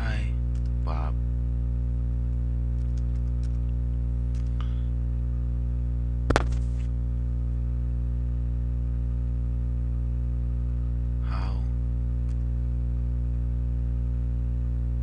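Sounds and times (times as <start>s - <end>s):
electrical hum: 0.0s - 15.0s
sharp knock: 6.3s - 6.6s.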